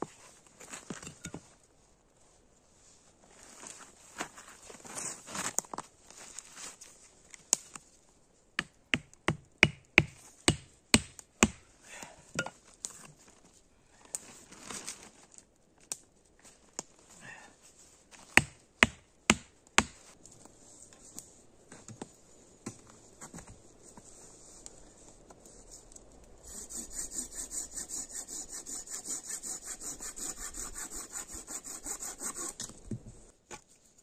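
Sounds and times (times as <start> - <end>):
soft rustling: 0.0 - 8.4, 20.0 - 26.4
wooden stakes hammered: 8.6 - 11.6, 18.4 - 20.0.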